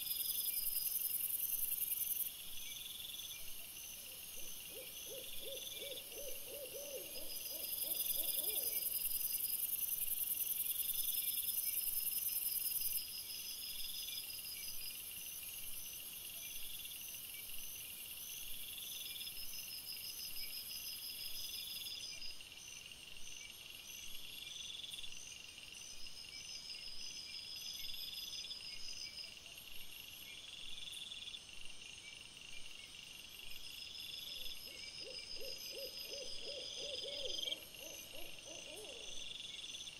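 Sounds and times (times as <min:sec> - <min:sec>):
crickets chirping: 0:00.0 - 0:39.9
owl hooting: 0:04.7 - 0:08.9, 0:35.0 - 0:39.2.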